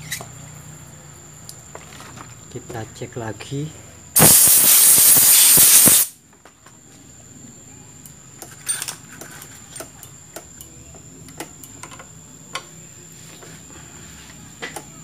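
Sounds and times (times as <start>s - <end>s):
compressed air blow gun hissing: 4.2s - 6.2s.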